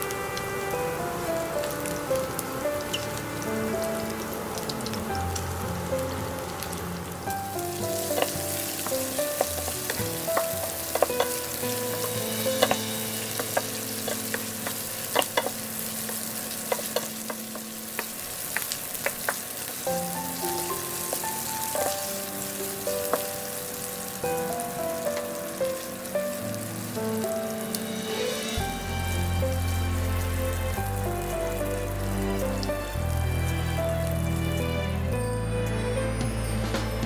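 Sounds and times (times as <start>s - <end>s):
meat sizzling in a pan: 0.0s - 34.4s
wooden spatula scraping a pan: 7.8s - 19.4s.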